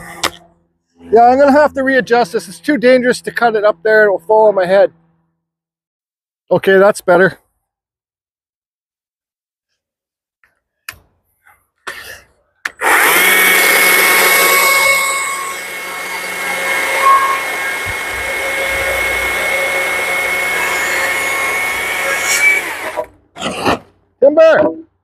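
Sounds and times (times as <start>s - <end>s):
chainsaw cutting wood board: 0.0s - 0.5s, 12.7s - 24.0s
chainsaw electric whine: 12.8s - 23.1s.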